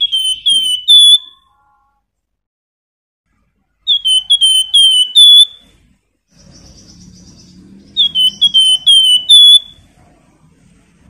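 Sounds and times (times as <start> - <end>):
songbird whistling phrases: 0.0 - 1.6, 3.8 - 5.7, 6.4 - 9.8.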